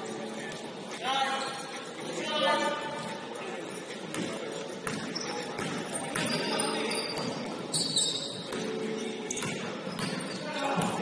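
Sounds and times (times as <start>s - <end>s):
basketball bouncing in hall: 3.9s - 11.0s
high squeak: 4.9s - 11.0s.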